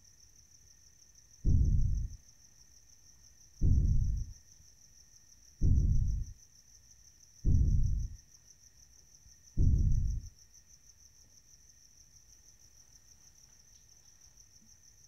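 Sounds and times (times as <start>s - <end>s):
crickets chirring: 0.0s - 15.0s
deep low booms: 1.4s - 2.2s, 3.6s - 4.4s, 5.6s - 6.3s, 7.4s - 8.2s, 9.6s - 10.3s.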